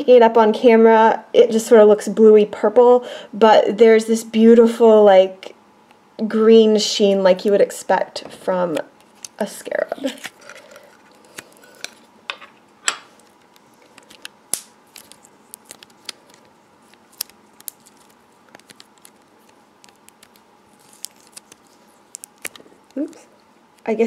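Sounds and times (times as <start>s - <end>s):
putty squishing: 14.9s - 23.2s.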